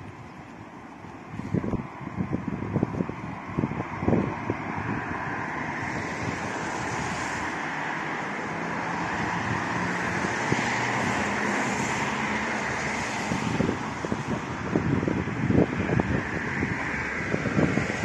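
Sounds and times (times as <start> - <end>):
distant road traffic: 0.0 - 18.0
wind on microphone: 0.0 - 18.0.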